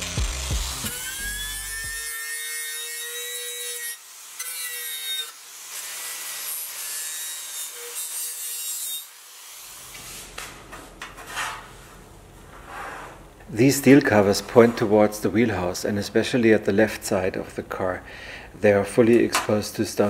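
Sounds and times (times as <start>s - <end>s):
angle grinder whine: 0.0s - 2.1s
wire brush scraping metal: 11.0s - 11.8s
scratchy strokes: 11.1s - 13.2s.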